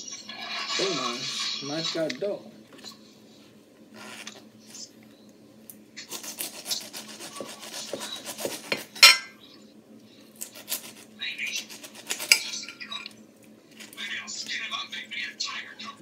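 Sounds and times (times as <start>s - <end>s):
knife sawing through pineapple rind: 6.0s - 9.0s, 10.4s - 12.5s.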